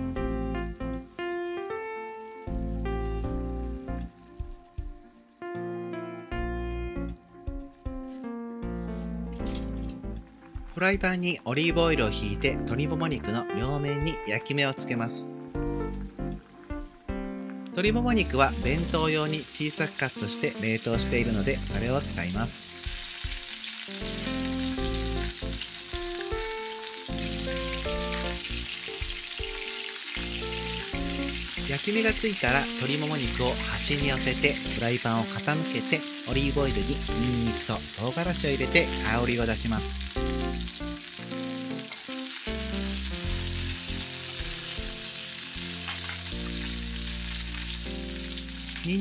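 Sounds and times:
background music melody: 0:00.0 - 0:49.0
chicken sizzling in frying pan: 0:18.2 - 0:49.0.

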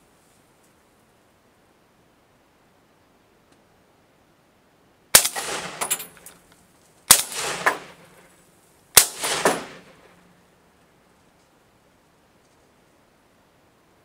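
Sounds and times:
rifle shots with echo: 0:05.2 - 0:06.3, 0:07.1 - 0:08.2, 0:09.0 - 0:10.3.

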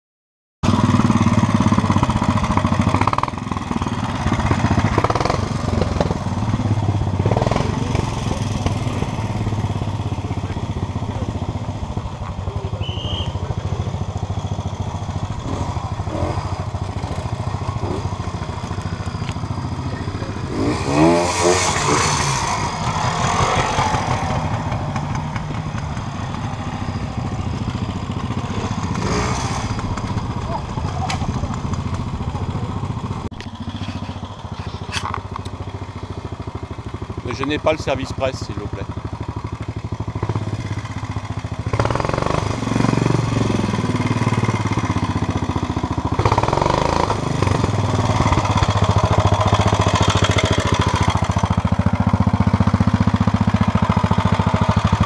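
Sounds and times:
motorcycle engine revving: 0:00.6 - 0:55.0
motorcycle engines idling and blipping: 0:00.6 - 0:55.0.

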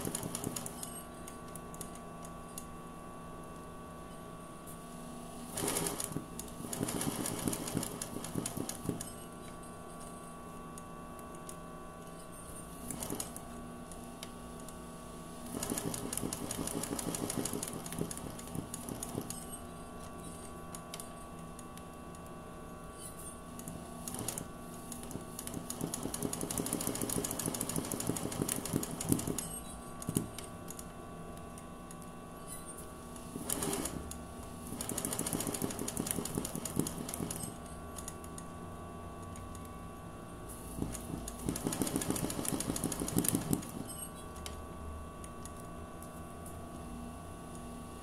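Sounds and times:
sewing machine stitching: 0:00.0 - 0:01.1, 0:05.4 - 0:09.3, 0:12.6 - 0:13.5, 0:15.4 - 0:19.7, 0:23.6 - 0:30.4, 0:33.3 - 0:38.1, 0:40.7 - 0:44.2.

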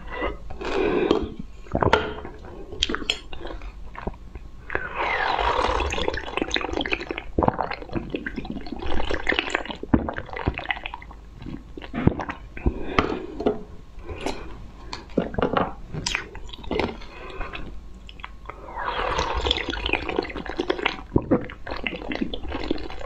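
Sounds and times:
wet slurping and chewing: 0:02.7 - 0:13.3, 0:14.1 - 0:23.0
sharp clicks and squishes: 0:18.0 - 0:18.6.

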